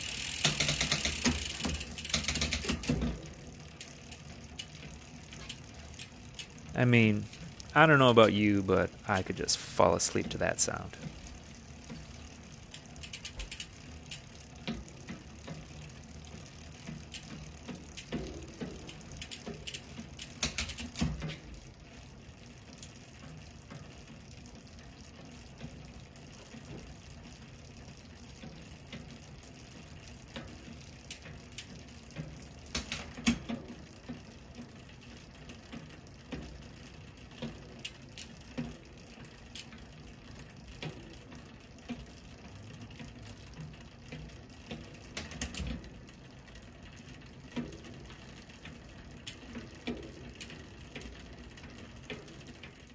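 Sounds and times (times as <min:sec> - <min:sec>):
bicycle chain whirring: 0:00.0 - 0:52.9
drivetrain ticks and clicks: 0:00.0 - 0:52.9.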